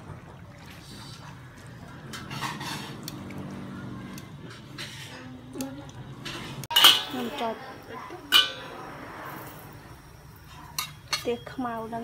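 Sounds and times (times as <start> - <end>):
utensil scraping metal pot: 0.9 - 3.7, 4.4 - 7.6.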